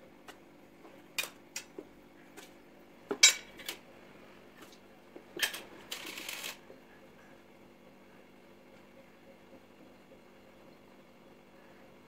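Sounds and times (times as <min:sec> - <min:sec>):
steel cups clinking against bowl: 0:03.2 - 0:03.6.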